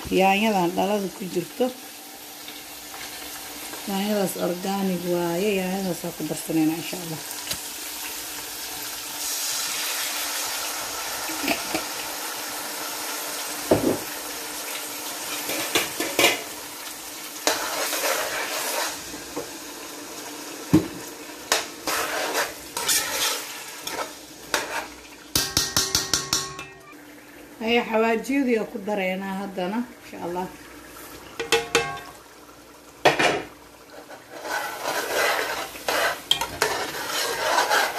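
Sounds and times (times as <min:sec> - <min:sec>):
vegetables sizzling in a pot: 0:00.0 - 0:37.9
metal spoon scraping a pot: 0:21.8 - 0:26.7, 0:34.1 - 0:37.9.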